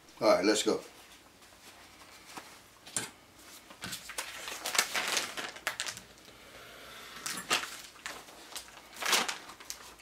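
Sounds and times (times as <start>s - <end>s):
plastic packaging crinkling: 3.7s - 6.3s, 7.2s - 10.0s.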